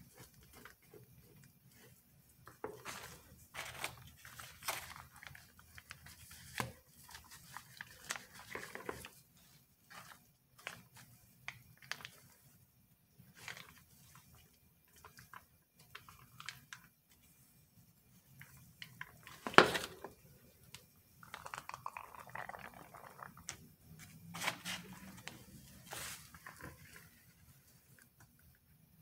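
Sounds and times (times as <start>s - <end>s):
soft rustling: 23.9s - 28.6s.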